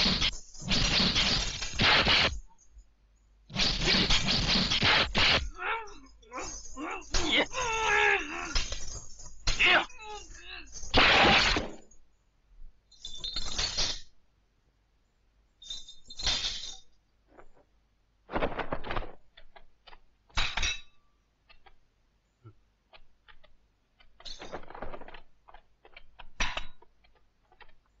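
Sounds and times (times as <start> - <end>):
short noisy crashes: 10.9 - 11.9.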